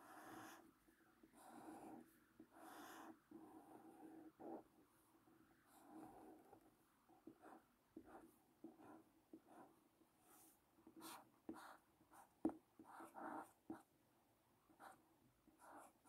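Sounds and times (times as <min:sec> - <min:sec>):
felt-tip pen writing on paper: 0:00.0 - 0:00.6, 0:01.3 - 0:04.6, 0:07.2 - 0:09.7, 0:10.3 - 0:13.9, 0:15.6 - 0:16.0.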